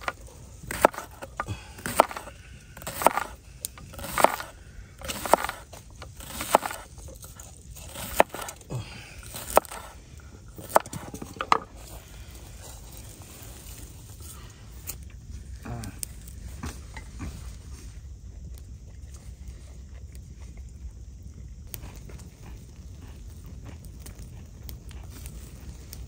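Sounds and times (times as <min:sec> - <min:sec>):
knife slicing onion: 0:00.0 - 0:08.6, 0:09.2 - 0:10.0, 0:10.6 - 0:11.2.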